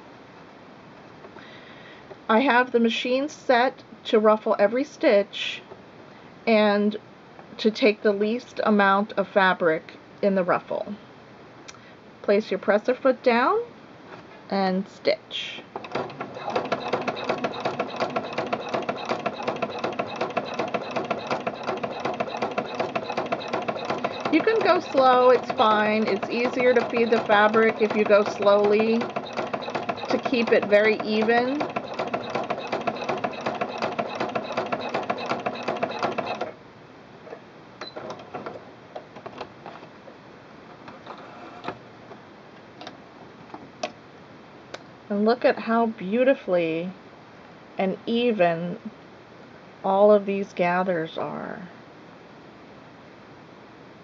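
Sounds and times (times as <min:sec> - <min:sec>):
sewing machine stitching: 0:15.8 - 0:36.6.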